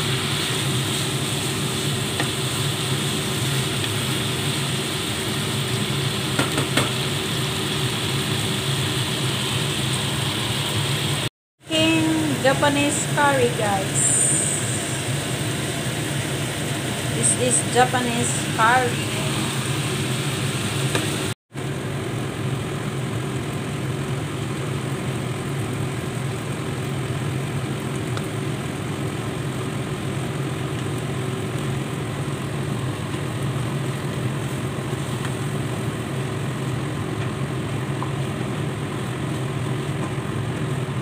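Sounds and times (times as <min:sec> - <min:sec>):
hiss: 0:00.0 - 0:05.2
low mechanical hum: 0:00.0 - 0:41.0.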